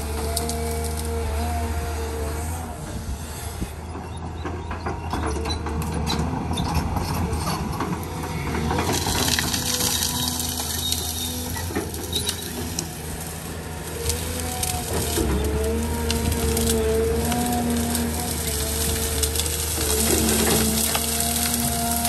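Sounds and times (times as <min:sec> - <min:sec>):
branches cracking and snapping: 0:00.0 - 0:01.3, 0:08.1 - 0:22.0
excavator diesel engine drone: 0:00.0 - 0:22.0.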